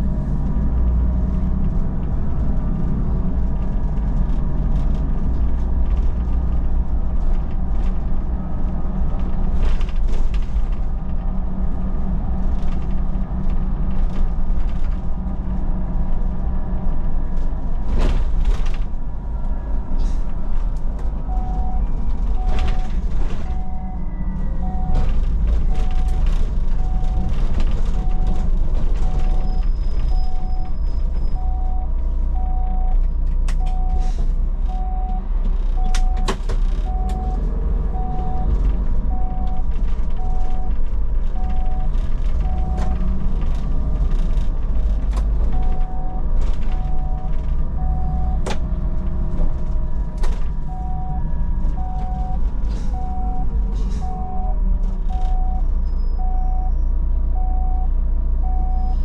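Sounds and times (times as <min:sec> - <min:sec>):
bus engine rumble: 0:00.0 - 0:59.0
short electronic beeps: 0:23.5 - 0:25.0, 0:31.4 - 0:33.0, 0:53.0 - 0:59.0.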